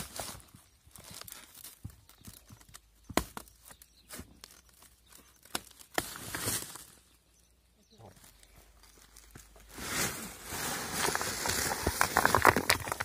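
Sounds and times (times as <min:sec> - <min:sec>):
plastic sack crinkling: 0:09.4 - 0:13.0.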